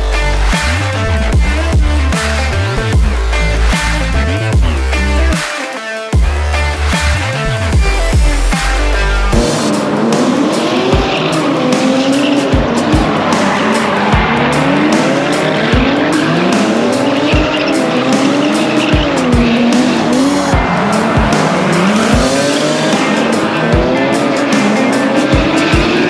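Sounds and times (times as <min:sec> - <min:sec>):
car engine revving: 0:00.0 - 0:05.5, 0:06.2 - 0:26.0
music with thumping beat: 0:00.0 - 0:26.0.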